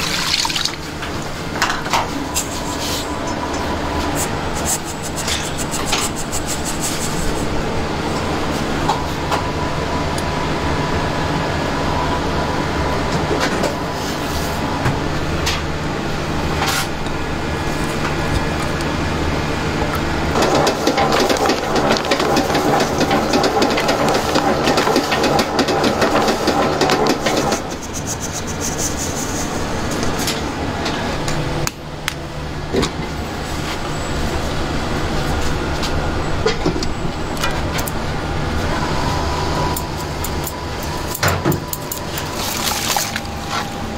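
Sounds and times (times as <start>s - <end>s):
low machine hum: 0.0s - 43.9s
utensils clicking and knocking: 20.4s - 28.6s.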